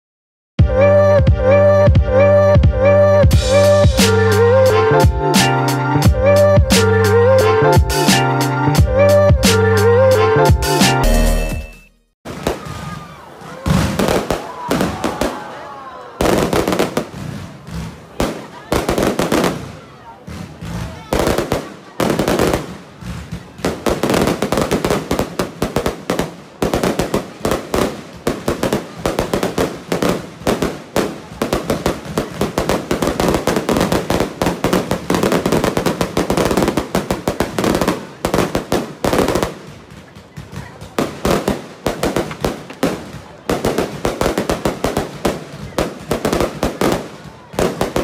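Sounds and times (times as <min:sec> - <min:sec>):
firework shell bursts and crackling: 0:16.2 - 0:48.0.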